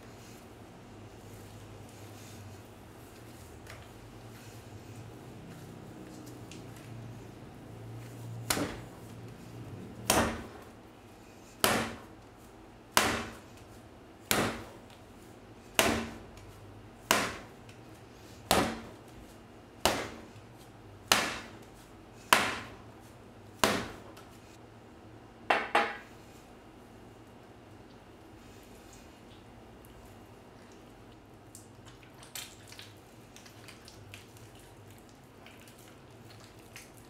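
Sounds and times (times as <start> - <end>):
bread dough slapped on countertop: 8.5 - 8.8, 11.6 - 12.0, 13.0 - 13.4, 14.2 - 14.8, 15.8 - 16.2, 17.1 - 17.5, 18.5 - 18.9, 19.8 - 20.2, 21.1 - 21.6, 23.6 - 24.1.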